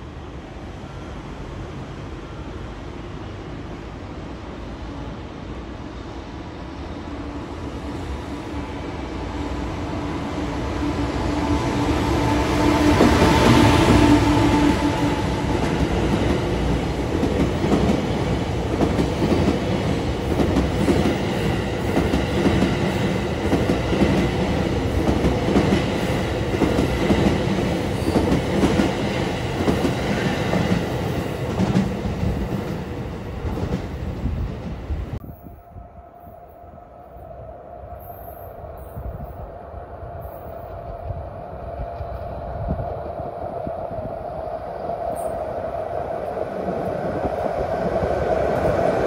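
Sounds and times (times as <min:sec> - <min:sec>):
train cars rumbling over rails: 0:00.0 - 0:35.2.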